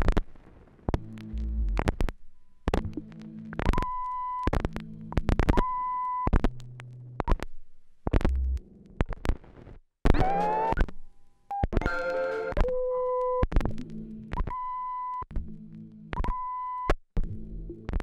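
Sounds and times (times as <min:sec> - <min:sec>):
needle clicks and pops: 0:00.0 - 0:10.2
scratched vinyl record playing: 0:00.0 - 0:11.0, 0:11.7 - 0:16.4, 0:17.2 - 0:18.0.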